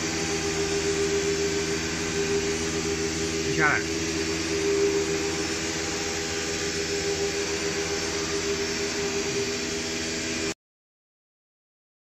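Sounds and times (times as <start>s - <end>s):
router spindles whining: 0.0s - 10.6s.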